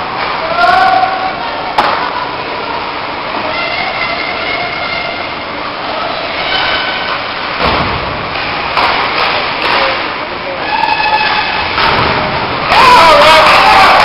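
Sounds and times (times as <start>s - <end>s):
arena noise: 0.0s - 14.0s
sharp knocks: 7.6s - 10.0s, 11.8s - 12.4s.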